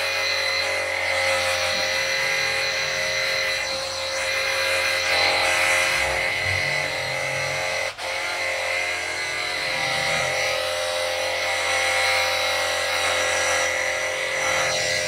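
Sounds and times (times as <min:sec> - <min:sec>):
pump whine: 0:00.0 - 0:15.0.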